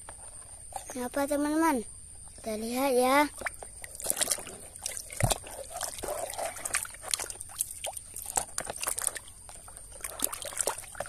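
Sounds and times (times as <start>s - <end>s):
water drips: 3.3s - 11.0s
hand splashing in muddy water: 3.4s - 11.0s.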